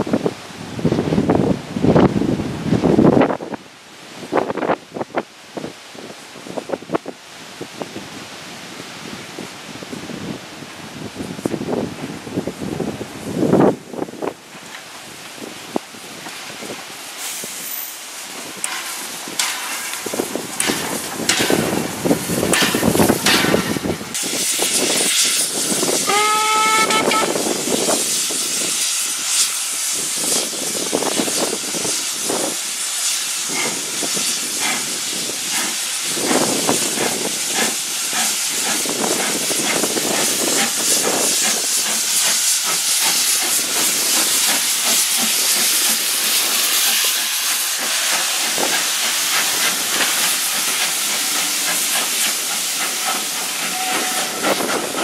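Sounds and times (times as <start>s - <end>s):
steam locomotive exhaust puffs: 13.2s - 55.0s
escaping steam hissing: 15.1s - 55.0s
steam whistle blast: 25.9s - 27.8s, 53.4s - 54.8s.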